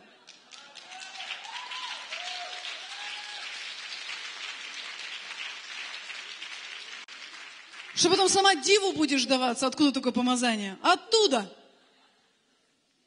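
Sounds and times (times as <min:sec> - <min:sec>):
audience clapping: 0:00.0 - 0:08.5.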